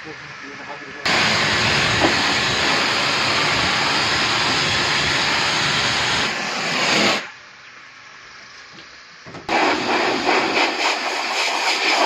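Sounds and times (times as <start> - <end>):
pressure washer spraying water: 1.1 - 7.4, 9.5 - 12.0.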